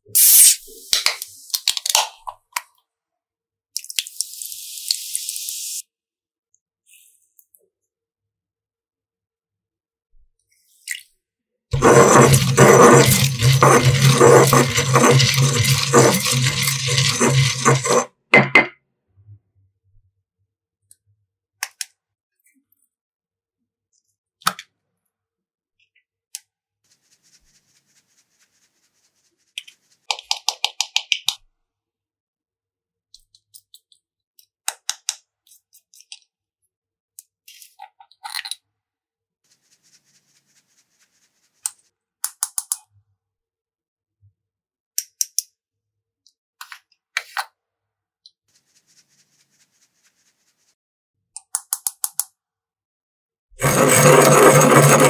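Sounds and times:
faint scraping or rustling: 11.8 - 18.0, 48.5 - 50.8.

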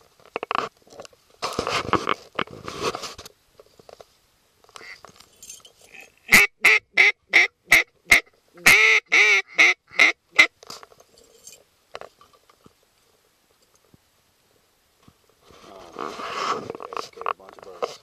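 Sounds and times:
duck quacking: 6.2 - 10.5.

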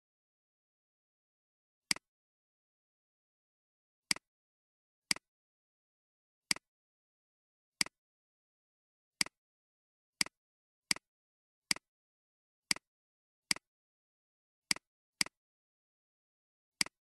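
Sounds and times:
computer mouse clicks: 16.8 - 17.0.

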